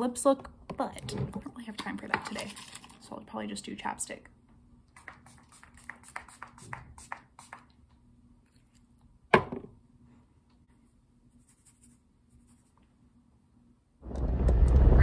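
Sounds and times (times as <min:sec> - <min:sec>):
hard object knocked down on surface: 0:09.3 - 0:09.8.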